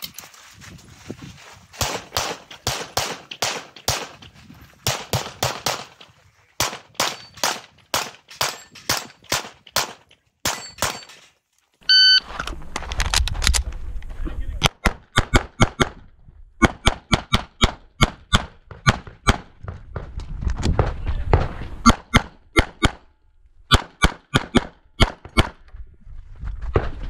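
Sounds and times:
wind rumble on microphone: 0:00.0 - 0:01.8, 0:12.4 - 0:14.6, 0:19.6 - 0:21.9, 0:25.6 - 0:27.0
pistol shots: 0:01.8 - 0:04.2, 0:04.8 - 0:06.0, 0:06.6 - 0:11.1
shot timer beep: 0:11.9 - 0:12.2.

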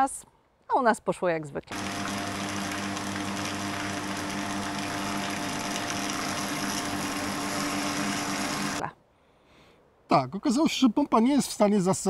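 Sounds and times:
electric water pump humming: 0:01.7 - 0:08.8.

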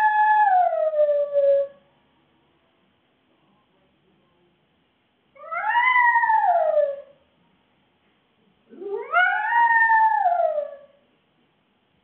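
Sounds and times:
dog howling: 0:00.0 - 0:01.8, 0:05.4 - 0:07.2, 0:08.7 - 0:11.0.

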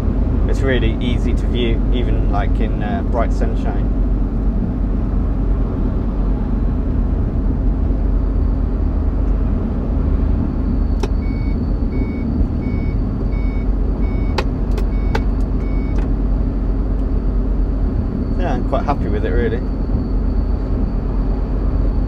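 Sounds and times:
lorry engine and road noise: 0:00.0 - 0:22.0
repeating electronic beep: 0:10.6 - 0:16.0.

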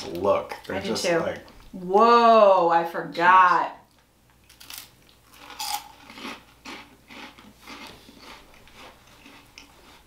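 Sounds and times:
crunching of potato sticks: 0:04.4 - 0:10.0.

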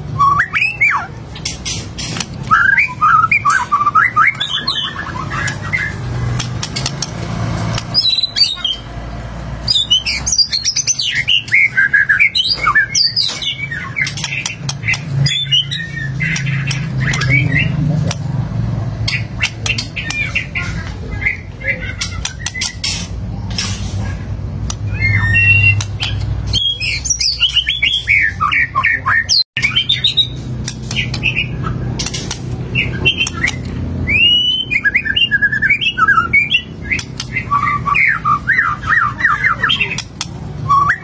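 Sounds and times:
bird singing rapid varied whistles: 0:32.8 - 0:40.0.

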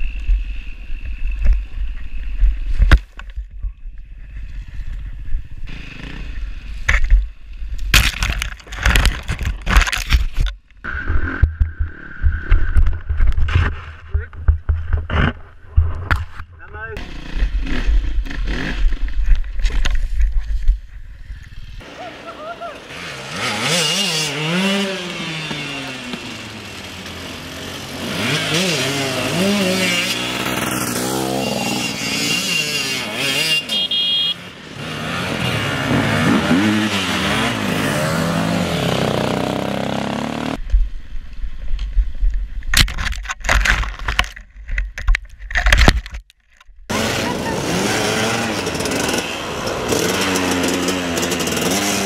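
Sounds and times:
dirt bike engines revving: 0:04.1 - 0:07.0, 0:16.6 - 0:19.9, 0:21.0 - 0:40.6, 0:46.9 - 0:52.0.

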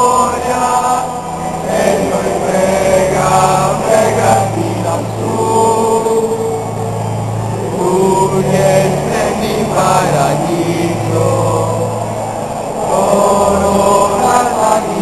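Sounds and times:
crowd singing held notes: 0:00.0 - 0:15.0
low drone: 0:00.0 - 0:15.0.

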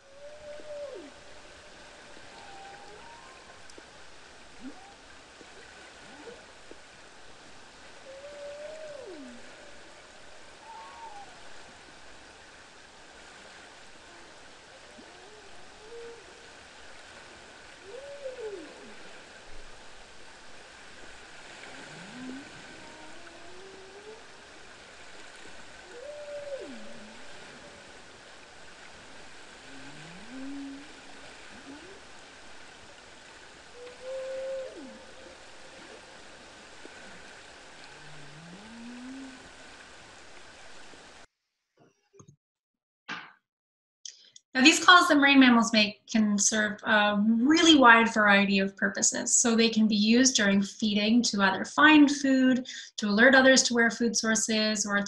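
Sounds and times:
whale calling underwater: 0:00.0 - 0:06.8, 0:07.5 - 0:40.9
sea noise hiss: 0:00.0 - 0:41.3.

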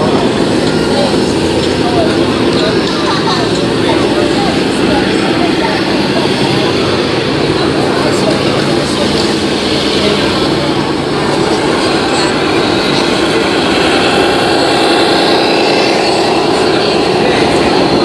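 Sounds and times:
toy trucks engine-like drone: 0:00.0 - 0:18.0.

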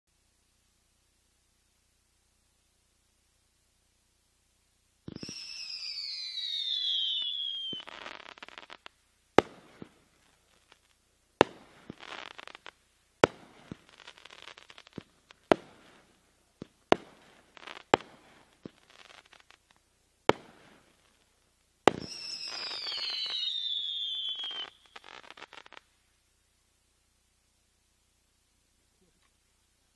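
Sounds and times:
firework bangs: 0:05.0 - 0:19.4, 0:20.2 - 0:21.0, 0:21.8 - 0:25.8
firework crackle: 0:05.0 - 0:26.3
firework falling whistle: 0:05.1 - 0:08.8, 0:21.9 - 0:25.8.

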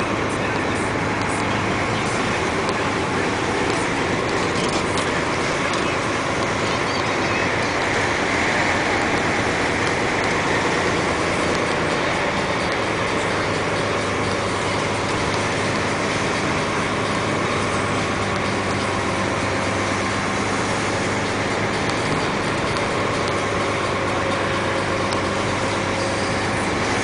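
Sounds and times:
dump truck engine running: 0:00.0 - 0:27.0
tyre noise on road: 0:00.0 - 0:27.0.

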